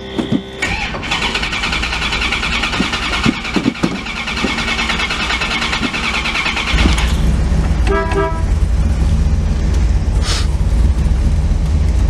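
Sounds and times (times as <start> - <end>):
car engine starting and running: 0.0 - 12.0.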